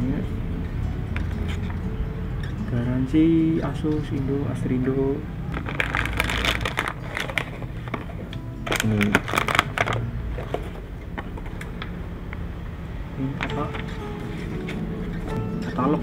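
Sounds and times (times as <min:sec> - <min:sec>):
paper and cardboard rustling: 0:05.5 - 0:10.8, 0:13.5 - 0:15.4.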